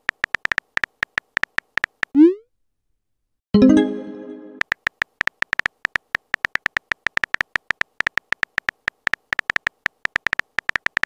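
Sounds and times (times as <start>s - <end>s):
ringing chord: 3.6s - 4.6s
keyboard tap clicks: 4.6s - 11.0s.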